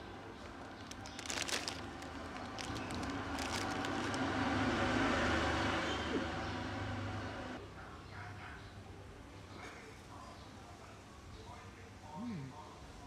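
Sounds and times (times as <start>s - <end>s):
noodle packets crinkling: 0.2s - 4.5s.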